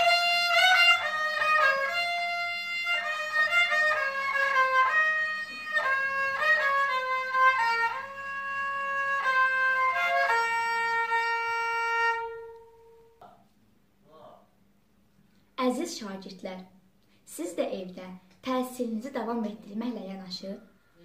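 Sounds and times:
bowed spike fiddle melody: 0:00.0 - 0:13.0.

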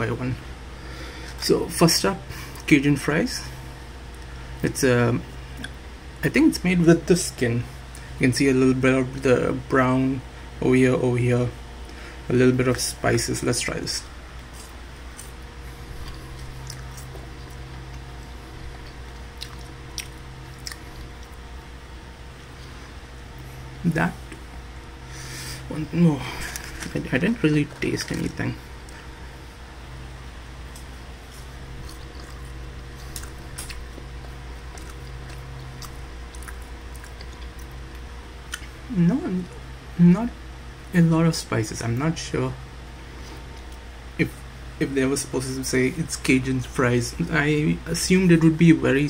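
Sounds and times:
steady low hum: 0:00.0 - 0:49.0
person chewing french fry: 0:14.3 - 0:21.6, 0:30.6 - 0:38.9.

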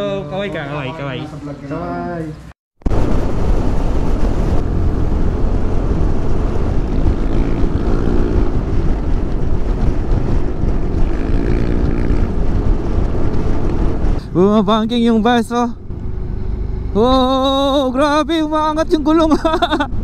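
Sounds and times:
motorcycle engine: 0:02.8 - 0:14.2
wind rush on microphone: 0:02.9 - 0:14.9.

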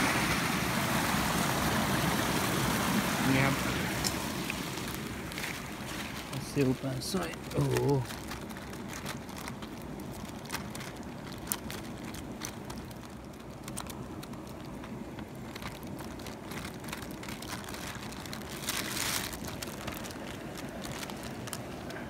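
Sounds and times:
plastic bag crinkling: 0:04.0 - 0:22.0
fish flipping in bag: 0:07.2 - 0:22.0.

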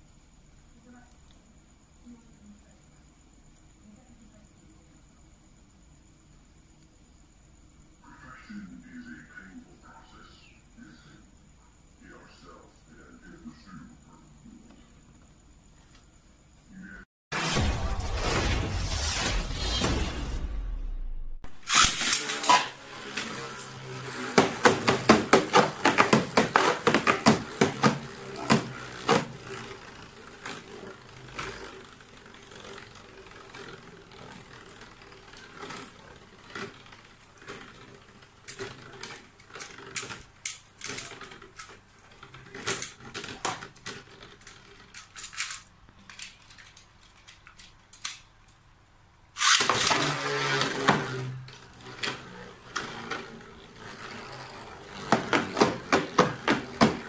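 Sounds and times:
loud noisy burst: 0:17.3 - 0:22.3
spinning top clicking and rattling: 0:21.6 - 0:48.6, 0:49.4 - 0:57.0.

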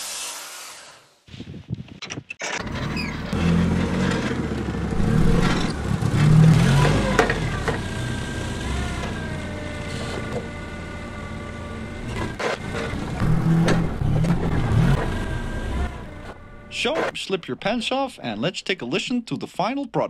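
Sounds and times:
forklift engine starting: 0:02.4 - 0:17.2.

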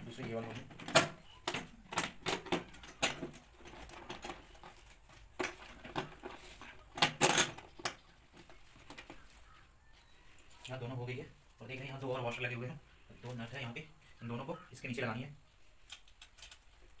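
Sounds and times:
plastic seat clicks and knocks: 0:00.5 - 0:04.4.

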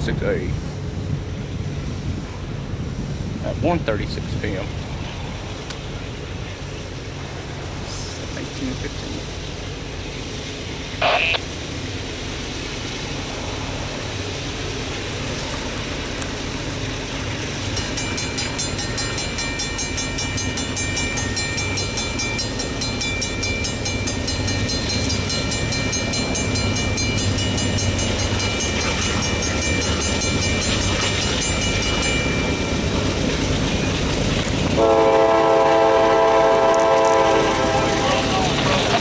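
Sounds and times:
freight train rumbling past: 0:00.0 - 0:39.0
high-pitched ringing: 0:17.8 - 0:33.2
locomotive horn blast: 0:34.7 - 0:39.0.

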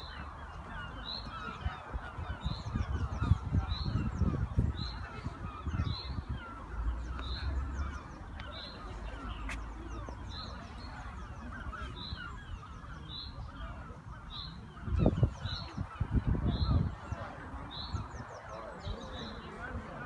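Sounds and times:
birds chattering: 0:00.0 - 0:20.0.

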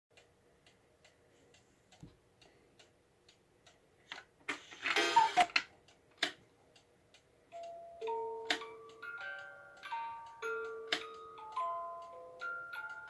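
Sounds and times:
clock ticking: 0:00.1 - 0:13.0
rattling whirr of clockwork: 0:04.6 - 0:05.6.

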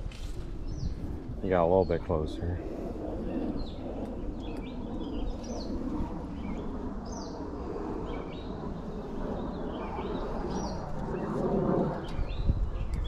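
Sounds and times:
birds chirping: 0:00.5 - 0:13.0.

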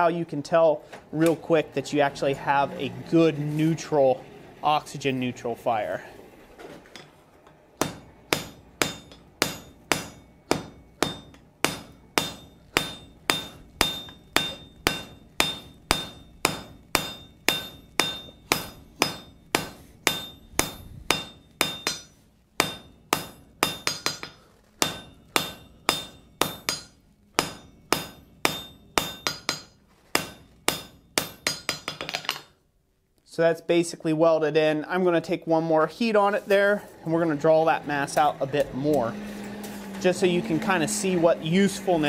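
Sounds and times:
hammer striking steel on anvil: 0:07.8 - 0:32.5.

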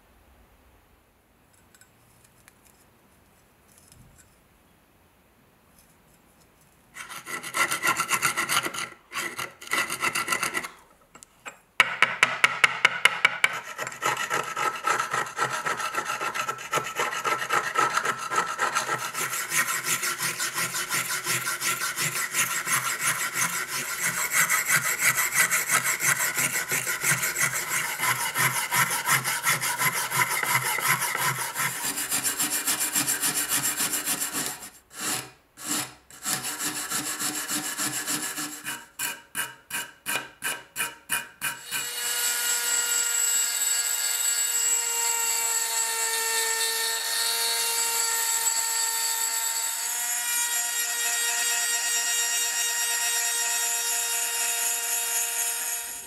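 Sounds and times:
wire brush scrubbing metal: 0:13.5 - 0:39.1.

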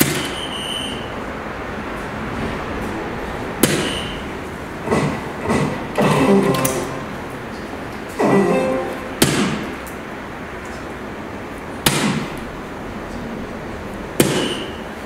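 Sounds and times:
darts striking dartboard: 0:03.6 - 0:04.0, 0:09.2 - 0:09.7, 0:14.2 - 0:14.7.

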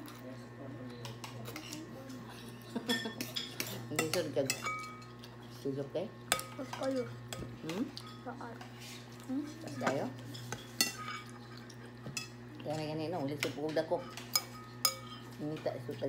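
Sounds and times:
spoons clinking on glass bowl: 0:02.9 - 0:05.2, 0:09.7 - 0:11.4, 0:13.7 - 0:15.6.

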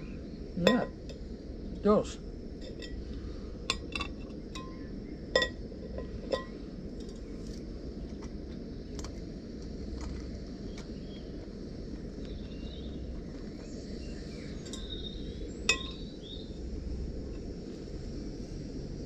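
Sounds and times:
low rumble: 0:00.0 - 0:19.0
metal pot clinking: 0:00.6 - 0:01.2, 0:02.6 - 0:03.0, 0:03.7 - 0:06.6, 0:14.7 - 0:14.9, 0:15.7 - 0:16.0.

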